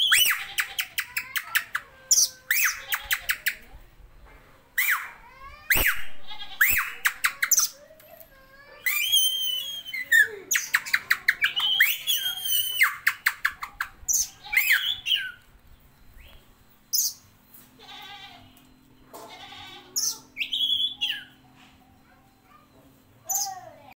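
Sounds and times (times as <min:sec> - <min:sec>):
magpie-robin singing: 0:08.8 - 0:15.4, 0:16.1 - 0:17.3, 0:20.0 - 0:21.5, 0:23.3 - 0:23.8.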